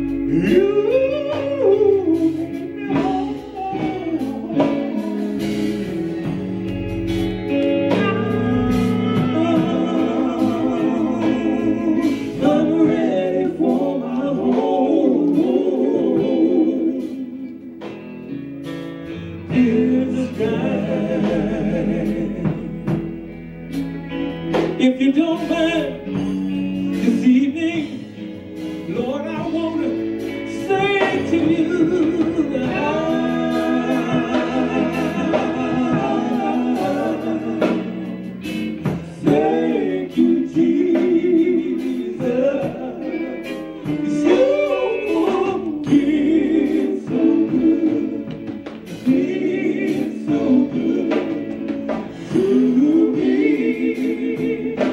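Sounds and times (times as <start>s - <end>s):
male quartet singing in harmony: 0.0s - 6.4s, 7.9s - 17.8s, 19.0s - 23.2s, 24.8s - 28.2s, 28.8s - 54.9s
electric guitar: 0.0s - 54.9s.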